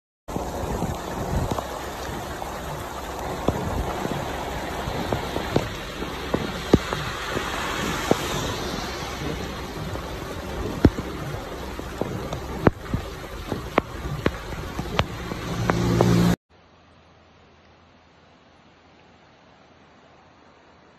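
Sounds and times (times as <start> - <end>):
heavy rain on a car: 0.3 - 16.4
raindrops tapping on car: 0.3 - 16.4.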